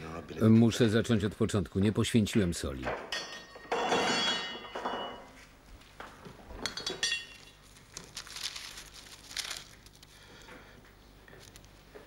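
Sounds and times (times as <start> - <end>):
soft rustling of objects: 5.2 - 12.0
small metal bowl clinking: 6.7 - 7.6.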